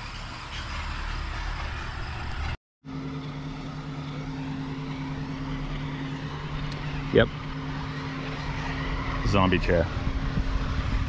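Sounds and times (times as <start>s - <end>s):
steady low hum: 2.4s - 11.0s
wind rushing over microphone: 8.2s - 11.0s.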